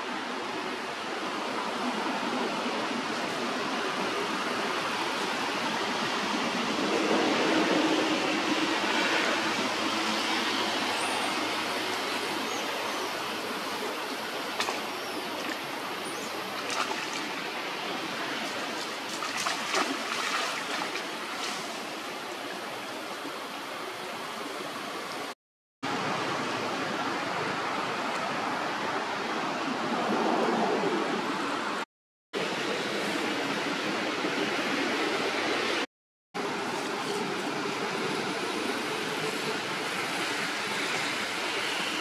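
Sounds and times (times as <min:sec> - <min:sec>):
flowing water rushing: 0:00.0 - 0:30.0.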